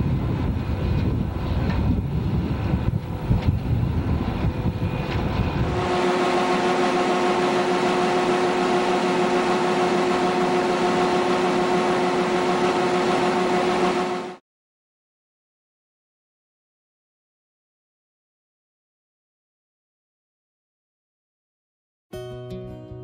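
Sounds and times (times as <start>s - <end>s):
wind on microphone: 0.0s - 7.3s
combine harvester whine: 0.0s - 14.4s.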